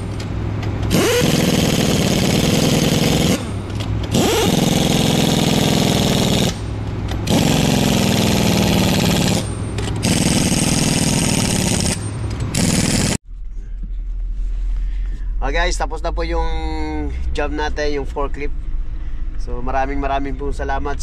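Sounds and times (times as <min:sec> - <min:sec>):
pneumatic impact wrench hammering: 0:00.0 - 0:13.2.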